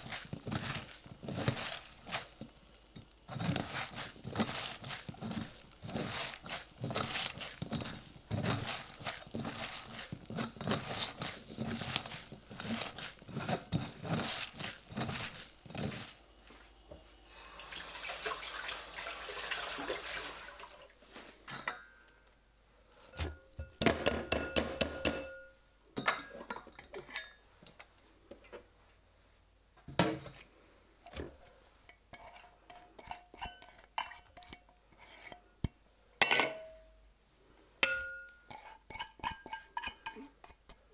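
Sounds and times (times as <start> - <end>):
squelching wet vegetables: 0.0 - 21.2
trickling water: 17.3 - 21.0.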